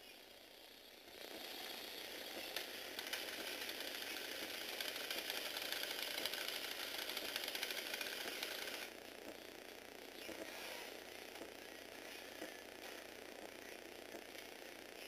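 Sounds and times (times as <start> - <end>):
plastic gears buzzing rattle: 0.1 - 15.0.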